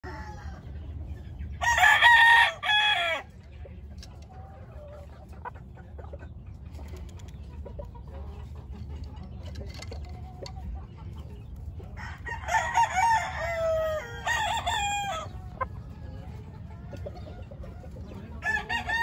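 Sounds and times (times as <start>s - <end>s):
rooster crowing: 1.6s - 3.2s, 12.0s - 15.3s
light pecking ticks: 3.4s - 12.2s
soft clucks: 3.4s - 12.2s, 15.1s - 18.4s.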